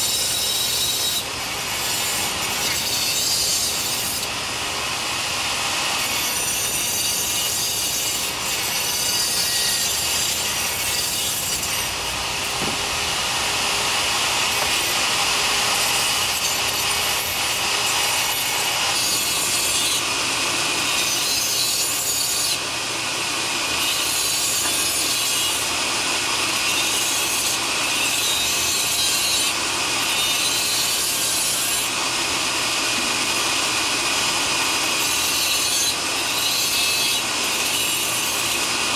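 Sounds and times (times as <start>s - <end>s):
rotary tool disc grinding plaster: 0.0s - 38.9s.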